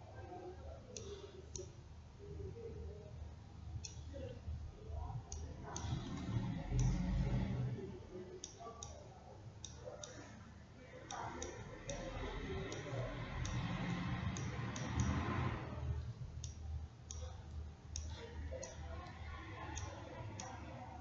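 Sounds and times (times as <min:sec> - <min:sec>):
computer mouse clicks: 0:00.9 - 0:01.8, 0:05.3 - 0:07.8, 0:09.6 - 0:10.4, 0:11.1 - 0:20.8.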